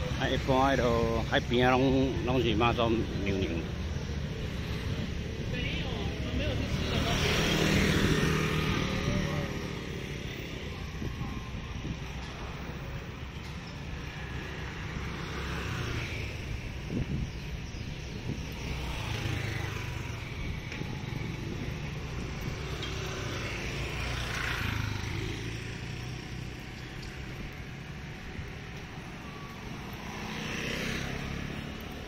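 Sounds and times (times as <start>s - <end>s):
scooter engine and road rumble: 0.0s - 32.0s
vehicles passing close by: 0.0s - 32.0s
wind buffeting microphone: 10.6s - 13.0s, 16.1s - 22.7s.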